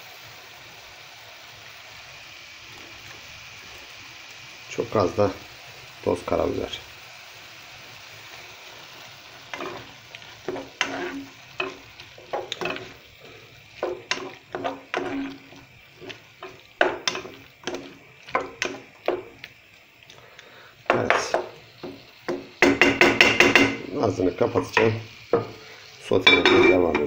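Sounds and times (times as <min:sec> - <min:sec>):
vegetables sizzling in oil: 0:00.0 - 0:27.0
wooden spoon knocking on pot: 0:13.8 - 0:15.3, 0:16.0 - 0:19.4, 0:20.9 - 0:23.8.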